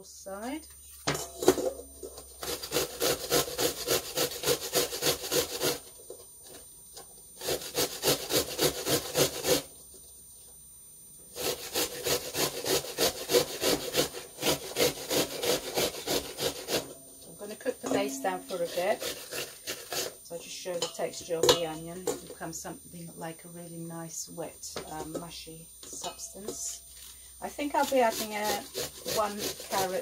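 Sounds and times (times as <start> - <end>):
onion rasping on metal grater: 2.4 - 6.6, 7.4 - 9.7, 11.3 - 21.3, 24.8 - 30.0.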